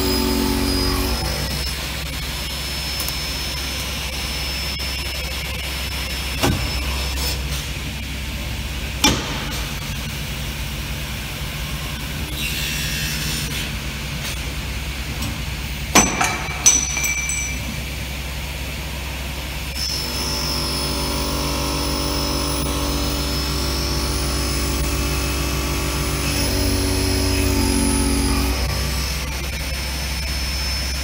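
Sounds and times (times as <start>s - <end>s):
drilling machine humming: 0.0s - 8.8s, 19.3s - 31.0s.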